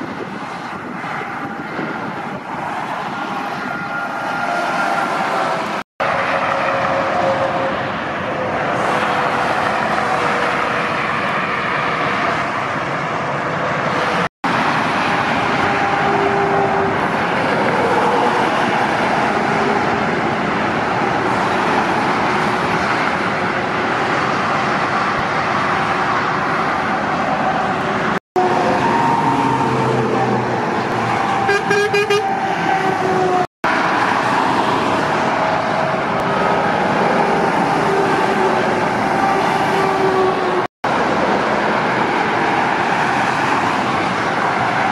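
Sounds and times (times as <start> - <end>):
motorway traffic passing: 0.0 - 44.9
truck horn: 6.0 - 11.0, 15.1 - 19.8, 28.4 - 33.4.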